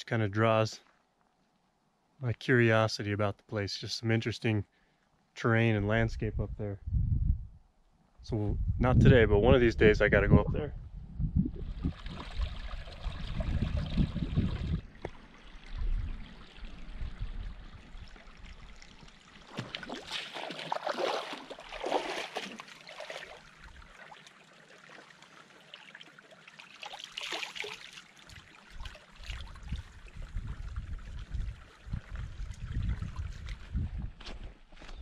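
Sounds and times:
low rumble: 8.3s - 12.0s
creek trickling over rocks: 11.7s - 33.8s.

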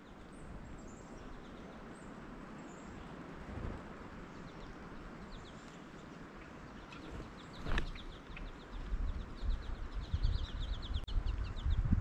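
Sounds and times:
sudden rustle: 7.0s - 8.1s.

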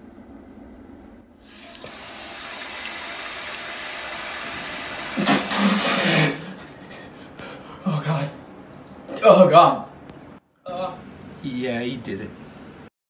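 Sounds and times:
water spraying with steady hiss: 1.4s - 6.4s.

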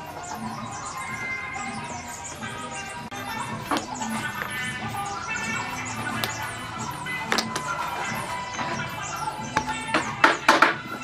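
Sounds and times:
sharp taps: 6.2s - 6.4s.

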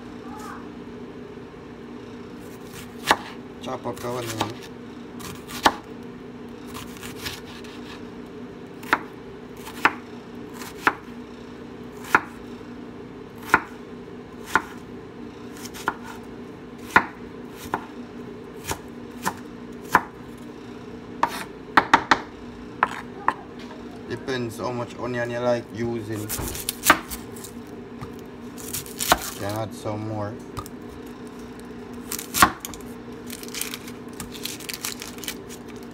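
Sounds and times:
steady hum: 0.0s - 35.9s
knife cutting onion on board: 2.5s - 5.9s, 6.7s - 8.1s, 8.8s - 10.0s, 10.6s - 11.1s, 12.0s - 12.4s, 13.4s - 13.8s, 14.4s - 14.8s, 15.5s - 16.2s, 16.8s - 17.9s, 18.6s - 20.2s, 21.2s - 23.4s, 26.1s - 29.5s.

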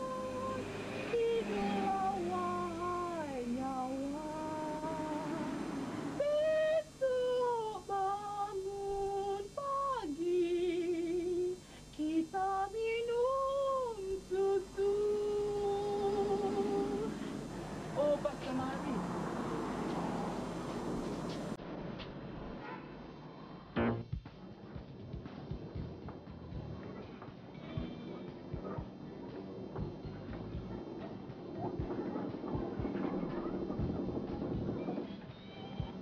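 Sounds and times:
high voice singing slow melody: 0.0s - 17.4s.

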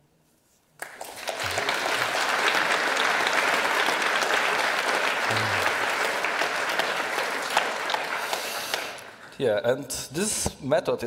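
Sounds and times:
audience applauding: 0.8s - 9.4s.

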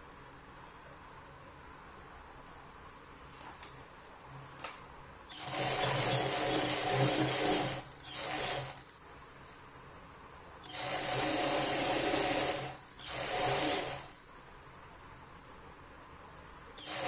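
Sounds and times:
sewing machine stitching: 5.3s - 8.9s, 10.6s - 14.2s, 16.8s - 17.0s.

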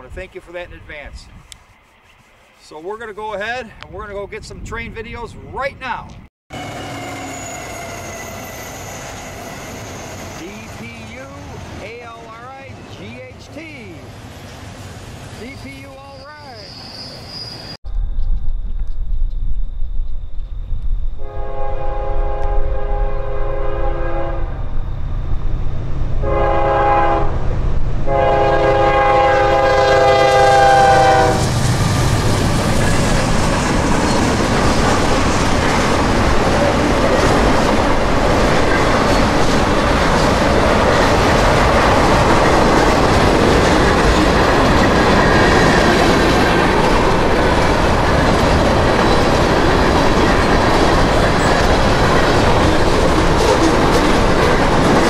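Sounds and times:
train horn blasts: 21.2s - 24.6s, 26.2s - 27.4s, 28.1s - 31.6s
train wheels clattering over rails: 31.4s - 55.0s.

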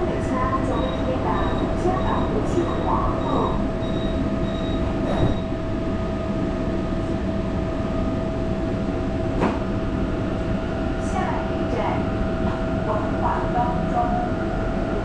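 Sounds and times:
train car hum: 0.0s - 15.0s
high beep: 0.7s - 5.4s.

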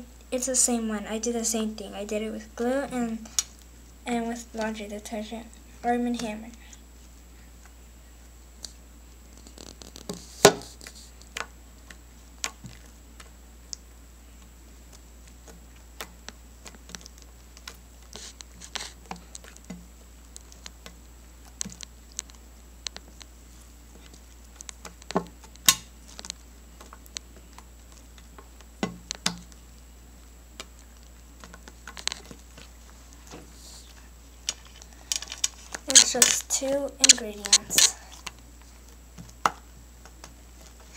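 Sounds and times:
slime clicking and popping: 14.9s - 23.3s, 24.0s - 29.6s.

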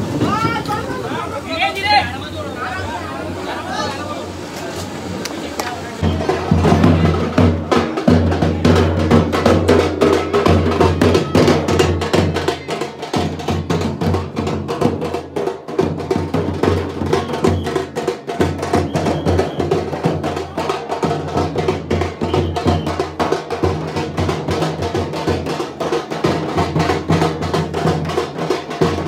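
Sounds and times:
rapid drum music: 6.0s - 29.0s.

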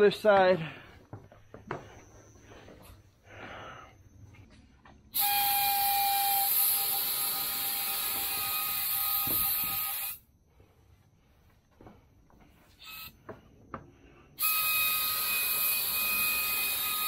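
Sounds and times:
paint spray gun air rush: 5.2s - 10.2s.

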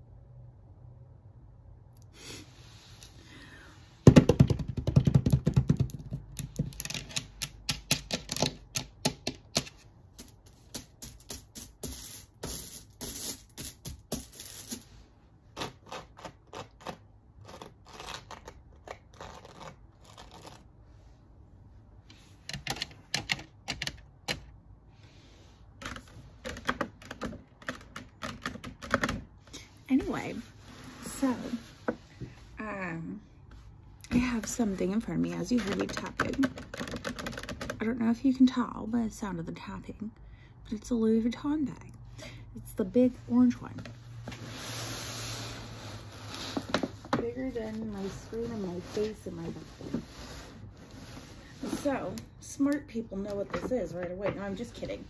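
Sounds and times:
fingernails tapping on a bag: 4.1s - 11.6s.

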